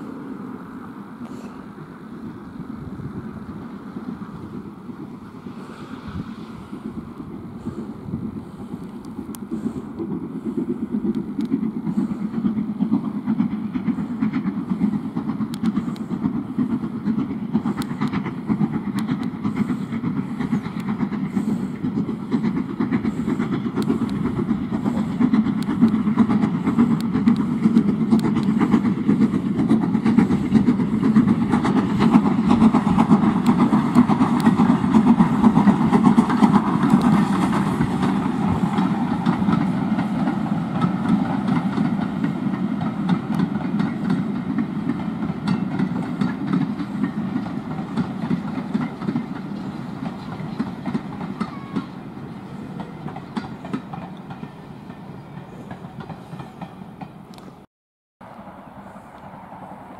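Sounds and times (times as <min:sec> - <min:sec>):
steam locomotive rumbling: 0:00.0 - 0:59.9.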